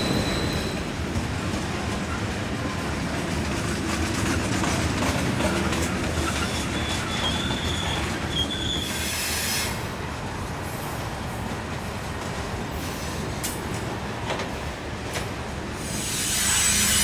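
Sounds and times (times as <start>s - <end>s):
high wheel squeal: 0.0s - 0.9s, 5.4s - 9.9s, 15.8s - 17.0s
train wheels rumbling on rail: 0.0s - 17.0s.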